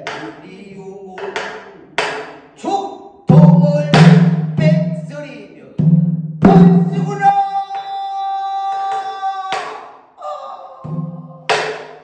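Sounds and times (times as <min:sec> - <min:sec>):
barrel drum strikes: 0:03.3 - 0:05.0, 0:05.8 - 0:07.2
man singing a long high note: 0:06.5 - 0:11.7.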